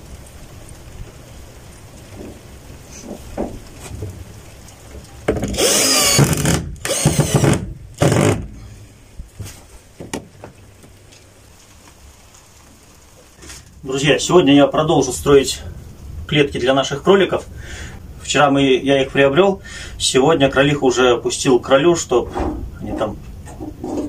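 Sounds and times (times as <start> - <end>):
light knocks: 3.0 - 4.2
cordless drill drilling into wood: 5.4 - 8.5.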